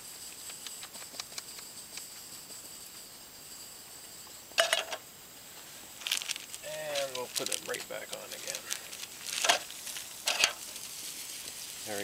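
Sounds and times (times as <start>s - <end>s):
stove hiss: 4.2s - 12.0s.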